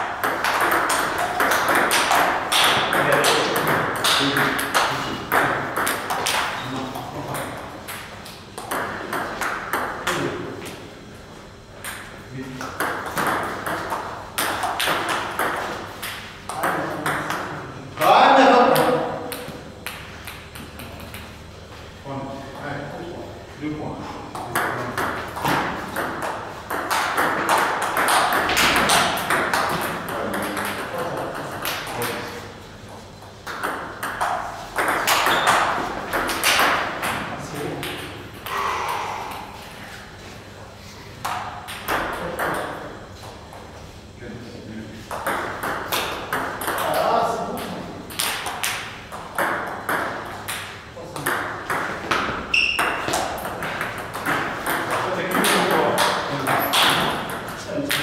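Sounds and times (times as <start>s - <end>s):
table tennis balls clicking: 0.2s - 10.8s, 24.4s - 32.3s, 33.2s - 38.5s, 45.1s - 58.0s.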